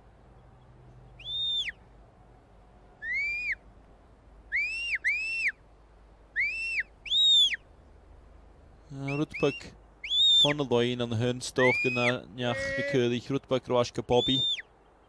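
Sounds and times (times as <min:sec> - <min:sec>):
shepherd's whistle notes: 0:14.2 - 0:14.6.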